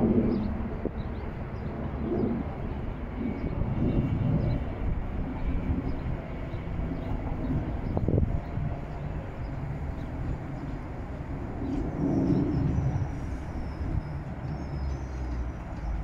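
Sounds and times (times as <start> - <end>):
train wheels rumbling: 4.8 - 16.0.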